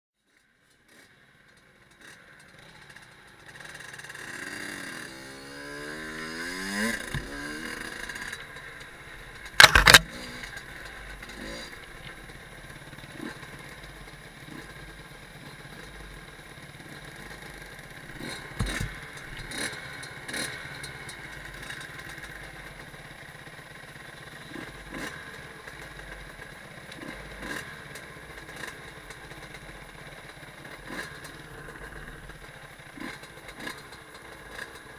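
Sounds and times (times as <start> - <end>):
dirt bike engine revving: 2.0 - 22.4, 24.4 - 26.2, 26.8 - 34.9
clicks and clatter: 9.4 - 10.7, 18.2 - 22.3.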